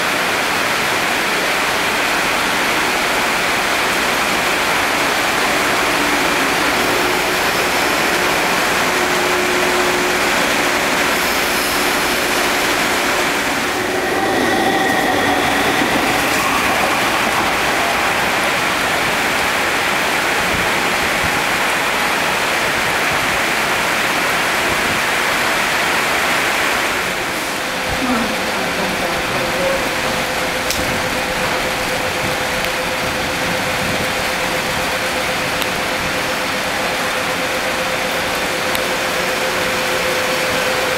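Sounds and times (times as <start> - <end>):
electric train running: 0.0 - 40.9
high train whine: 0.0 - 40.9
rain and spray rushing: 0.0 - 40.9.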